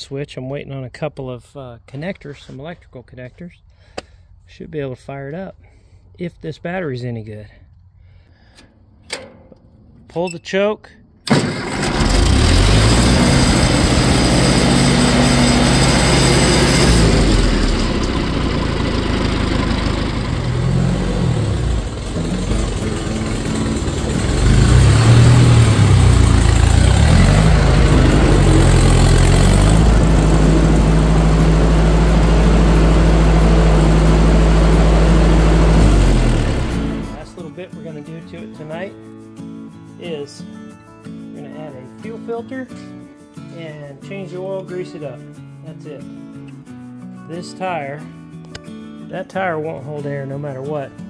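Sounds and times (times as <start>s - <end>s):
tractor engine running: 11.3s - 37.3s.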